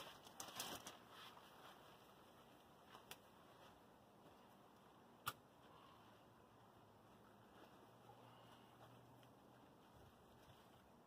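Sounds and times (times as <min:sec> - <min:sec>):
plastic wrap crinkling: 0:00.0 - 0:02.1.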